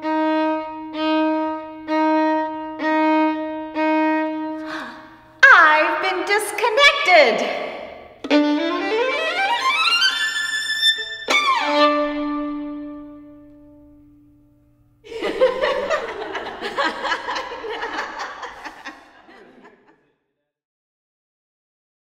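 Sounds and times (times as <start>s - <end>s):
violin sliding to low note: 8.2s - 13.6s
audience laughter: 15.1s - 20.0s.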